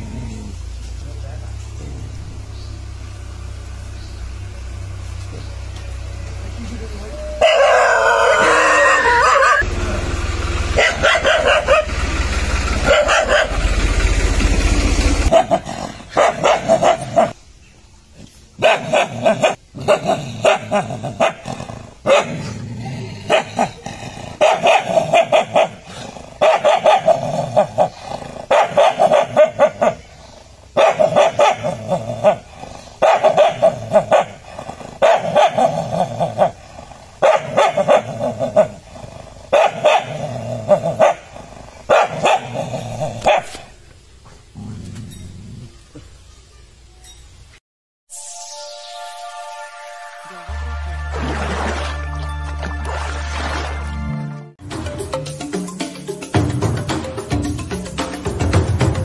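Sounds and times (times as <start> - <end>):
dogs barking: 7.3 - 9.7, 10.6 - 13.9, 15.2 - 17.4, 18.6 - 22.6, 23.3 - 43.8.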